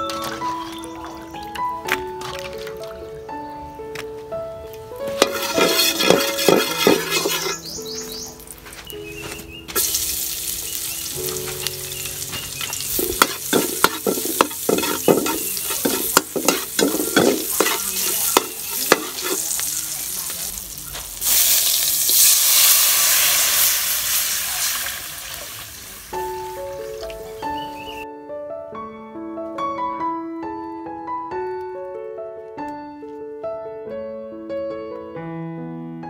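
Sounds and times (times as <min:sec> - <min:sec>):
metal ladle scraping wok: 0:05.1 - 0:07.8, 0:12.9 - 0:20.1
food sizzling in hot oil: 0:05.1 - 0:08.5, 0:09.7 - 0:28.0
water poured into hot wok: 0:05.2 - 0:07.6, 0:09.8 - 0:11.4, 0:12.1 - 0:27.2
hiss of boiling and steam: 0:09.8 - 0:26.7.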